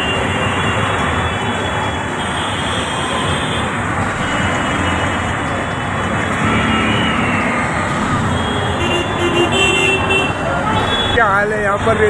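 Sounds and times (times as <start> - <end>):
road traffic din: 0.0 - 12.0.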